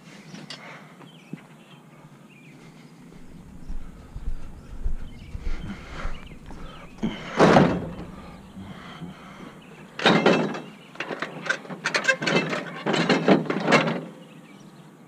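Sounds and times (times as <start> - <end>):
sharp knocks and rattles: 3.2 - 14.0
scrap items clattering: 4.0 - 9.4.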